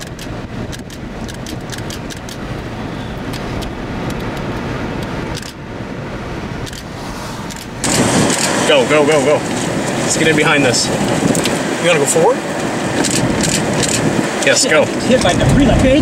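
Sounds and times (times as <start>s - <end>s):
storm wind and rain: 0.0s - 16.0s
rain and debris ticking on car: 7.8s - 16.0s.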